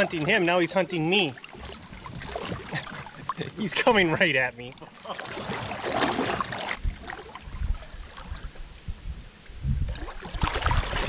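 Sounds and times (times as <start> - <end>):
water sloshing and splashing: 0.0 - 8.7, 9.8 - 11.0
wind buffeting microphone: 6.8 - 11.0.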